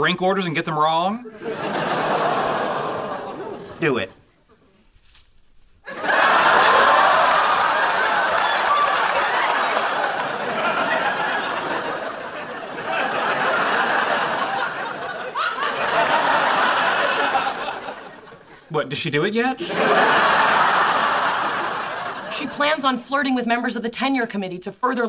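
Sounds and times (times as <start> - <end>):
studio audience laughing: 1.3 - 3.8, 5.9 - 18.7, 19.6 - 22.7.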